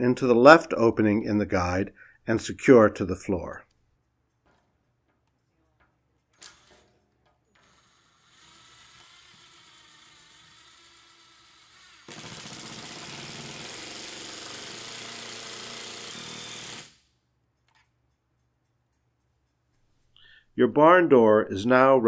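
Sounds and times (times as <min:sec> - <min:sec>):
impact driver driving a screw: 0:06.4 - 0:06.9, 0:07.5 - 0:17.1.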